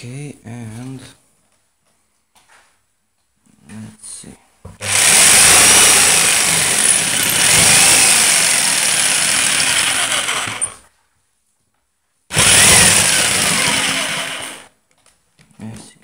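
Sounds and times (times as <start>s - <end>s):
electric jigsaw cutting board: 4.8s - 10.8s, 12.3s - 14.7s.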